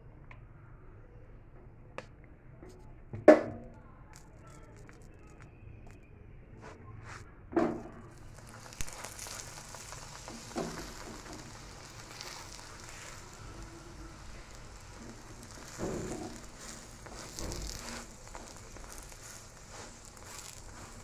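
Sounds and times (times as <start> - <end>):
bread sizzling in oil: 8.0 - 21.0.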